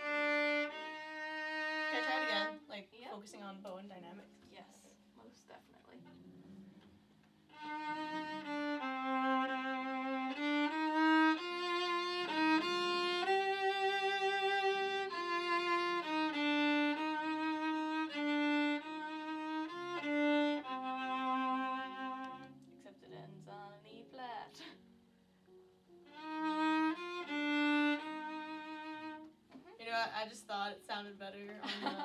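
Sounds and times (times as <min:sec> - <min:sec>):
solo violin bowed notes: 0:00.0 - 0:02.8, 0:07.5 - 0:23.6, 0:26.0 - 0:29.4.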